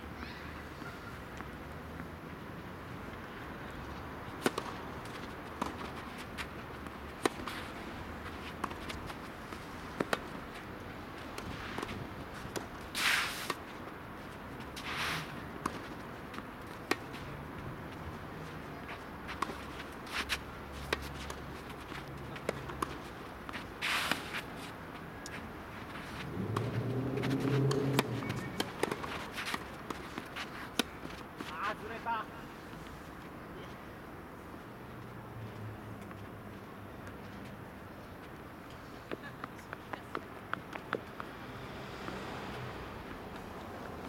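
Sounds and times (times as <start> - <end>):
outdoor background noise: 0.0 - 44.0
racket hitting tennis ball: 4.4 - 6.5, 8.4 - 10.7, 25.3 - 31.5
tennis ball bouncing: 4.4 - 7.6, 8.3 - 10.7, 11.3 - 13.8, 15.6 - 17.3, 18.8 - 24.6, 25.2 - 31.6
shoes scraping on court: 4.4 - 33.7.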